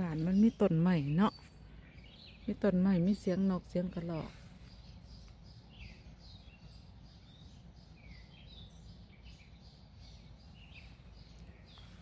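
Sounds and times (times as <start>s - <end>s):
birds chirping: 0.0s - 12.0s
low steady rumble: 0.0s - 12.0s.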